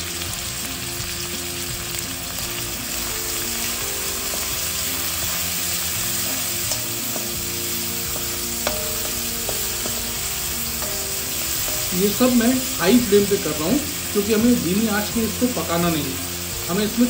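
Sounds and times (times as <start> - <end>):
vegetables sizzling in a wok: 0.0 - 17.0
spoon scraping the pan: 2.9 - 13.2.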